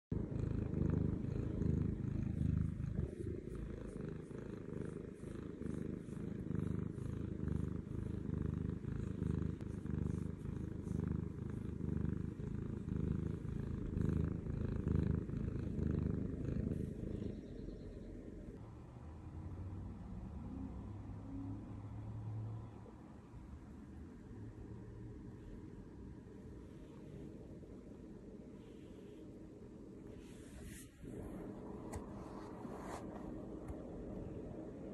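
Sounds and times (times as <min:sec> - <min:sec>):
cat purring: 0:00.1 - 0:34.9.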